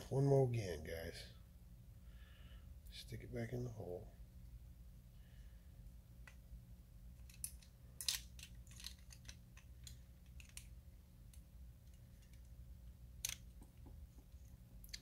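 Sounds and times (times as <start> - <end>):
low steady hum: 0.0 - 15.0
small metal parts clicking: 7.2 - 10.7, 11.3 - 12.5, 13.2 - 13.7.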